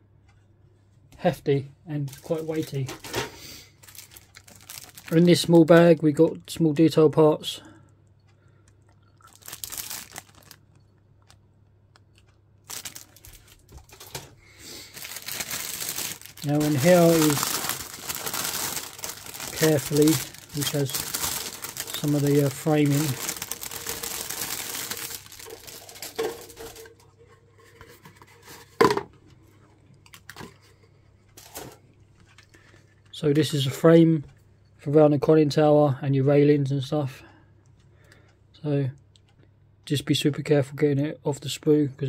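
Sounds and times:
plastic bag crinkling: 0:02.0 - 0:06.1, 0:09.2 - 0:11.4, 0:12.1 - 0:27.0.

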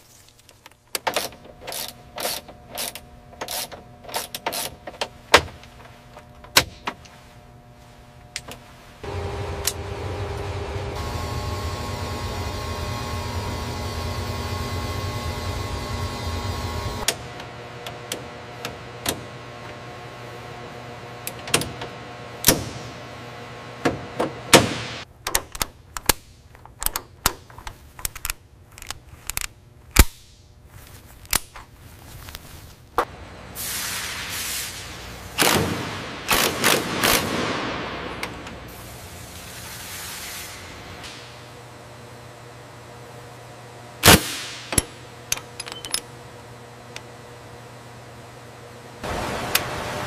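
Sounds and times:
electrical hum with low rumble: 0:00.0 - 0:50.0
air hissing: 0:33.6 - 0:35.5.

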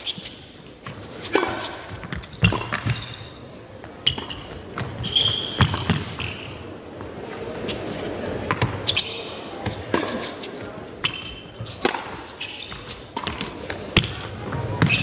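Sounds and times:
shoe squeaks on court: 0:00.0 - 0:06.6, 0:07.2 - 0:13.8, 0:14.8 - 0:15.0
ball bouncing on court: 0:00.8 - 0:06.6, 0:08.4 - 0:10.3, 0:11.0 - 0:15.0
racquet hitting tennis ball: 0:00.8 - 0:06.6, 0:07.3 - 0:15.0.

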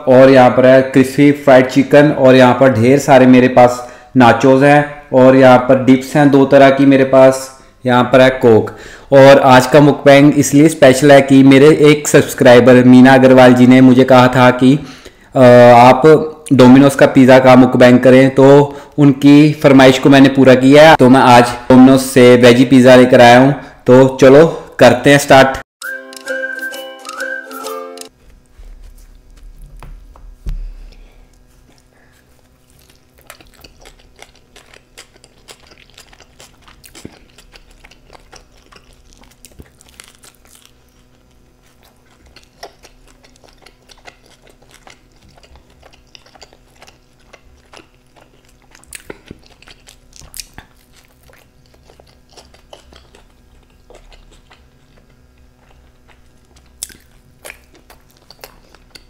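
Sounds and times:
crust crunching: 0:28.2 - 0:59.0
thump: 0:29.8 - 0:30.8
chewing pizza: 0:30.8 - 0:59.0
wet mouth clicks: 0:41.9 - 0:59.0.

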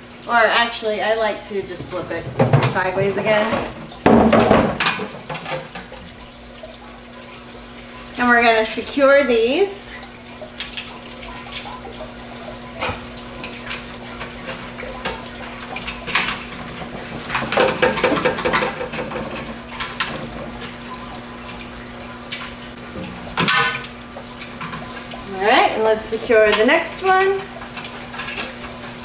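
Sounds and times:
metal knocking on plastic: 0:04.0 - 0:05.1.

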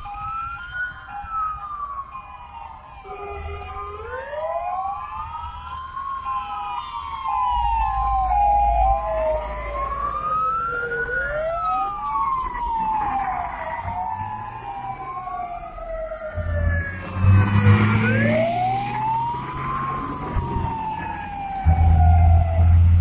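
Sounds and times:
fire engine sirens wailing: 0:00.0 - 0:23.0
trucks driving past: 0:08.1 - 0:23.0.

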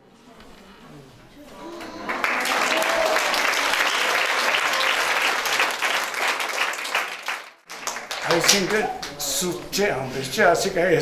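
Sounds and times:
crowd applauding: 0:01.6 - 0:09.2.

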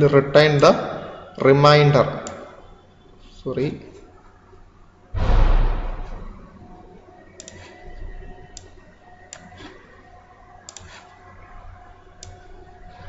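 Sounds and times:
faint steady hum: 0:00.0 - 0:13.0
computer mouse clicking: 0:07.4 - 0:09.8, 0:10.6 - 0:11.2, 0:12.2 - 0:12.5.

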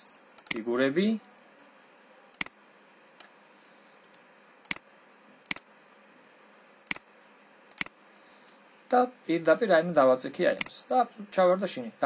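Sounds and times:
computer mouse clicks: 0:00.0 - 0:00.6, 0:02.4 - 0:02.6, 0:07.7 - 0:08.0.

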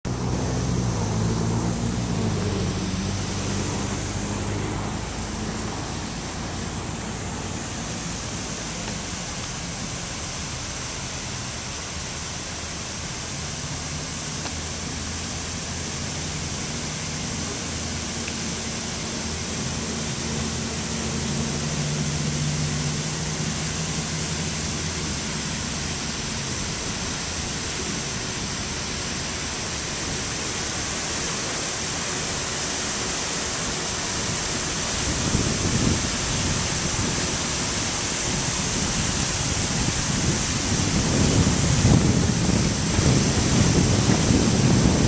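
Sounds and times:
fountain water jets splashing: 0:00.1 - 0:45.0
wind buffeting microphone: 0:35.0 - 0:45.0.

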